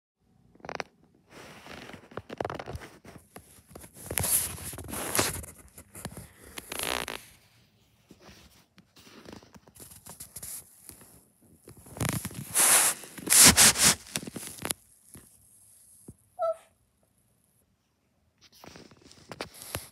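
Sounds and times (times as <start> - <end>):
fabric rubbing on microphone: 1.3 - 16.1.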